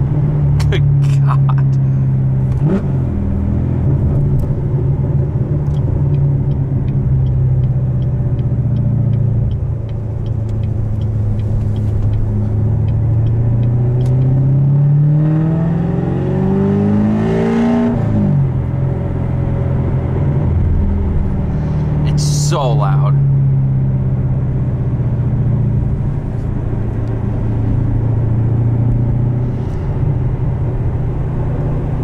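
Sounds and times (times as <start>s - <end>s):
loud car engine revving: 0.0s - 32.0s
light regular ticking: 5.6s - 14.4s.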